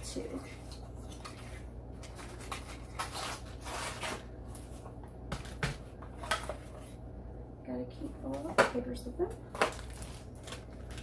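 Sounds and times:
paper and packaging rustling: 0.0 - 7.0, 9.4 - 11.0.

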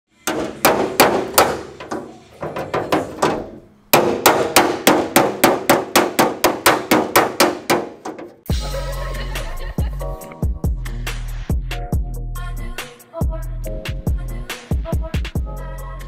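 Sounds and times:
hammer striking sheet metal: 0.2 - 8.5.

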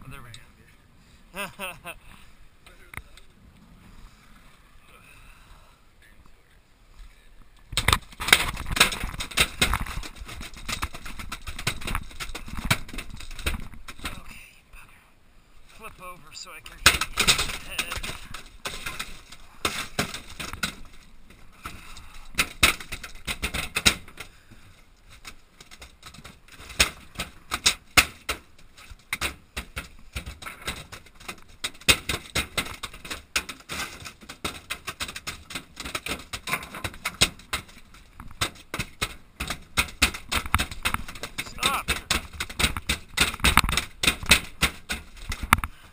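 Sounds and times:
fish flopping on metal deck: 7.8 - 14.4, 16.7 - 45.9.

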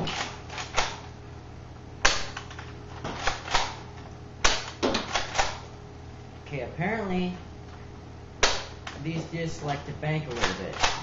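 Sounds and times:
toy blaster shot snapping: 0.0 - 1.1, 2.0 - 2.5, 3.2 - 3.8, 4.4 - 5.6, 8.4 - 8.9, 10.4 - 11.0.

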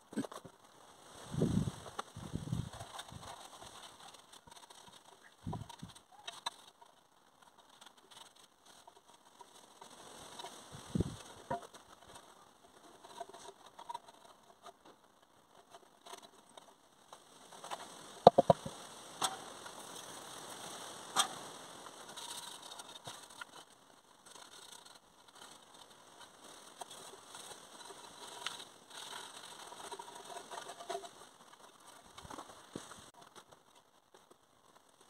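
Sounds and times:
rag rubbing: 18.2 - 18.7.

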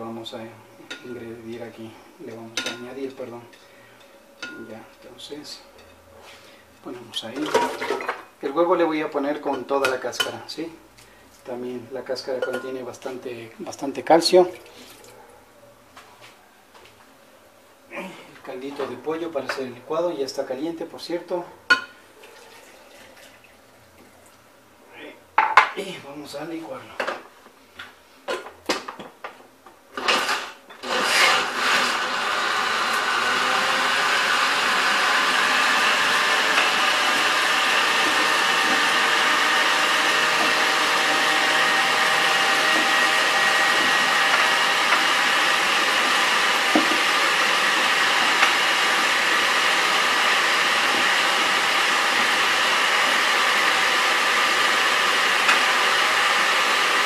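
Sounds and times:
blender running: 29.9 - 57.0
blender jar and lid knocks: 46.7 - 47.1.

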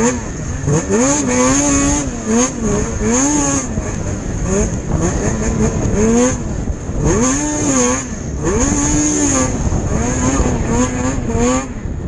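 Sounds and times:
snowmobile engine revving: 0.0 - 12.0.

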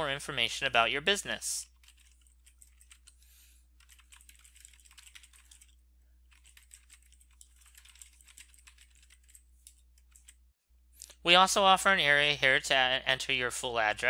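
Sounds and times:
fast keyboard typing: 0.1 - 3.2, 3.8 - 10.4.

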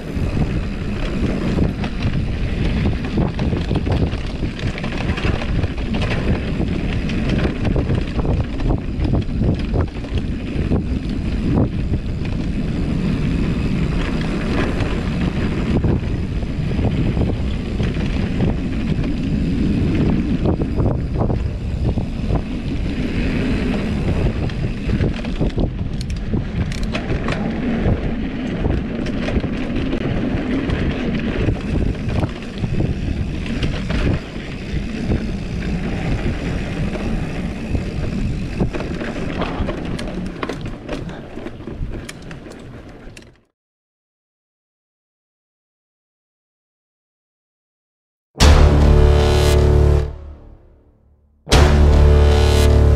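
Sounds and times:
bike tyres rumbling on dirt: 0.0 - 43.2
wind buffeting microphone: 0.0 - 43.2
bike knocks and rattles: 0.2 - 12.6, 23.6 - 43.4.

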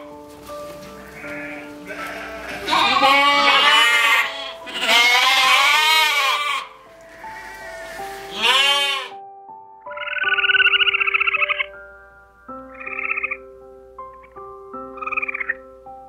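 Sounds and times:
soft background piano music: 0.0 - 16.0
sheep bleating: 0.9 - 9.2.

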